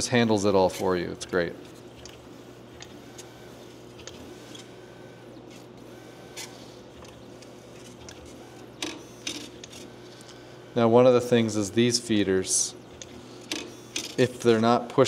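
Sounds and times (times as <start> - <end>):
faint motor whines: 0.0 - 15.0
machine low hum: 0.0 - 15.0
sharp machine clicks: 7.0 - 9.9, 12.9 - 14.6.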